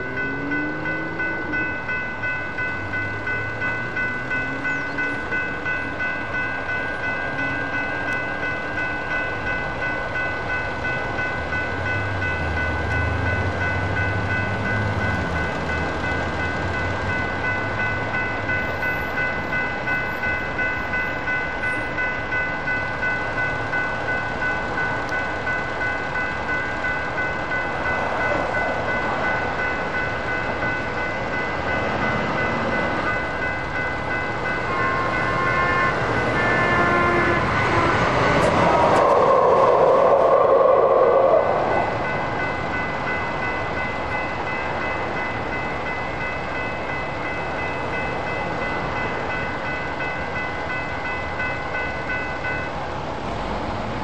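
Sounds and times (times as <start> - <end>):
railroad crossing bells ringing: 0.0 - 54.0
train horn: 34.7 - 38.2.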